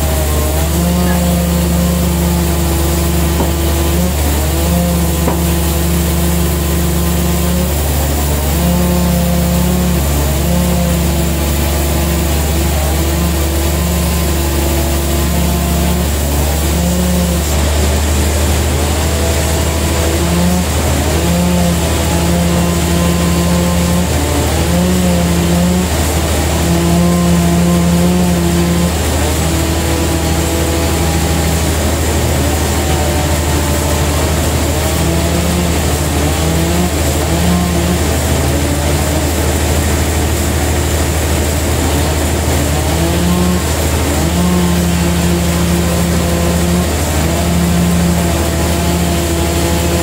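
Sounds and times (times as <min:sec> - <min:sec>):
pitched machine hum: 0:00.0 - 0:50.0
sawmill machinery drone: 0:00.0 - 0:50.0.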